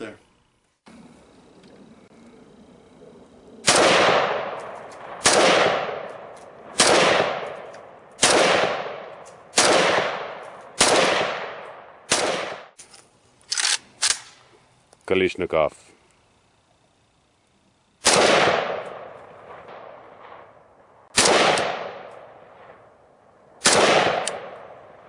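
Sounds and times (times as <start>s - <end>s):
rifle shots with echo: 3.6s - 12.8s, 18.0s - 20.5s, 21.1s - 22.9s, 23.6s - 25.0s.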